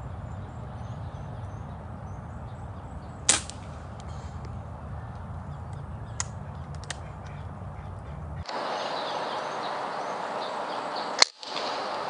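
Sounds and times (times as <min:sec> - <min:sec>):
air rifle shot crack: 0:03.3 - 0:04.5
steady hiss: 0:08.5 - 0:12.0.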